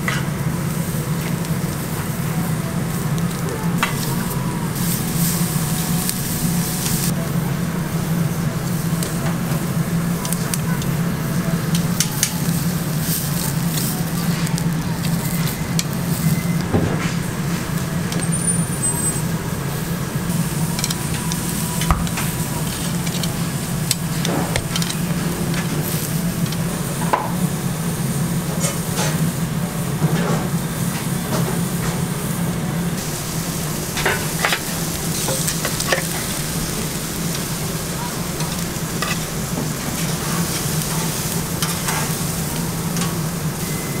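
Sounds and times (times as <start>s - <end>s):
food sizzling on a grill: 0.0s - 44.0s
metal tongs clicking on grate: 23.0s - 25.0s.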